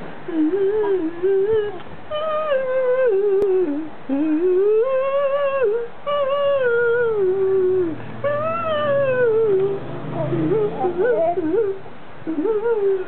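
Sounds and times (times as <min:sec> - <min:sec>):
baby vocalising gliding tones: 0:08.3 - 0:11.8.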